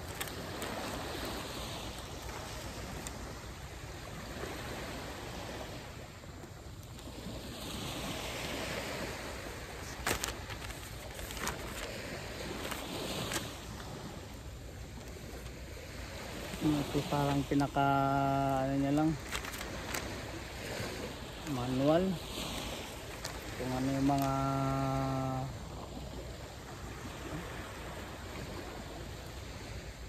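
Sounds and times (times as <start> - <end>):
paper leaflet crinkling: 0.0 - 1.0, 9.8 - 13.6, 19.0 - 20.1, 23.1 - 23.4, 24.1 - 24.3
small waves washing on shore: 0.0 - 30.0.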